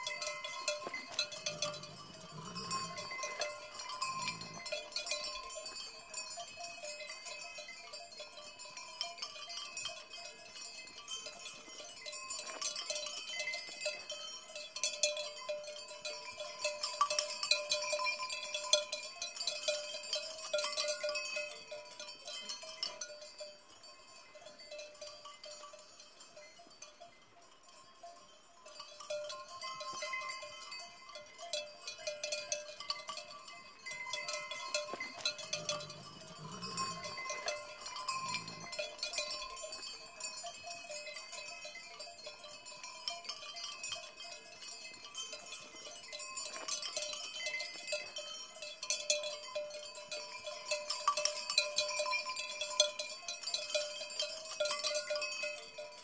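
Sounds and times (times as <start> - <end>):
sheep bells clinking: 0.0 - 56.0
sheep bleating: 35.6 - 37.3.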